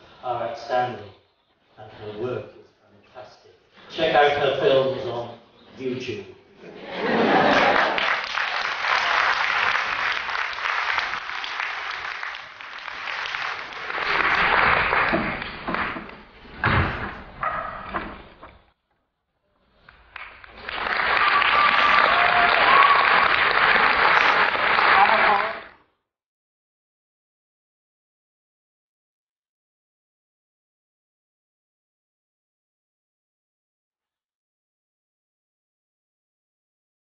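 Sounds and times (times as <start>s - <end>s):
audience applauding: 7.2s - 16.3s, 19.8s - 25.8s.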